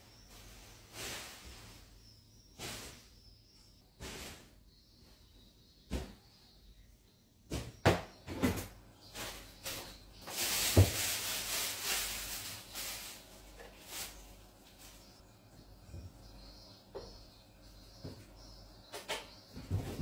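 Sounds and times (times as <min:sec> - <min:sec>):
rustling: 0:09.1 - 0:15.2.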